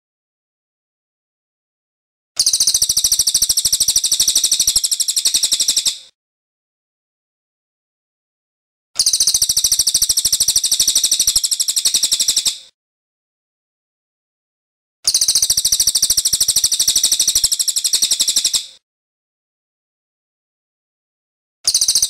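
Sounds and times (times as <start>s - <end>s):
bird rattling call: 2.4s - 6.1s, 9.0s - 12.7s, 15.1s - 18.7s.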